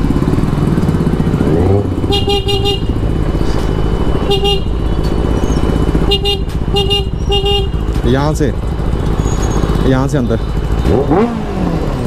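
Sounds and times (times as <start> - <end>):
motorcycle engine running: 0.0 - 12.0
vehicle horn short beeps: 2.1 - 3.0, 4.3 - 5.0, 6.0 - 7.9.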